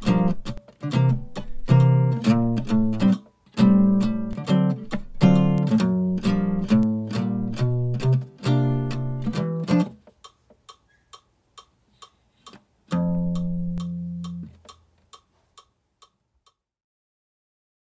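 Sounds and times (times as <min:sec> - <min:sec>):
jazz guitar: 0:00.0 - 0:10.1, 0:12.9 - 0:14.7
faint ticks keeping time: 0:00.0 - 0:16.6.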